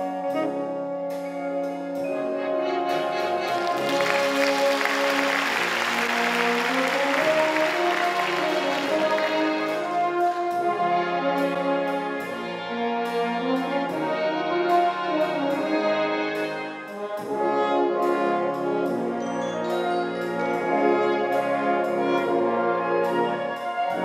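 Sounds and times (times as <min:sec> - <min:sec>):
brass and woodwind chords: 0:00.0 - 0:24.0
drum kit beat: 0:01.2 - 0:12.4.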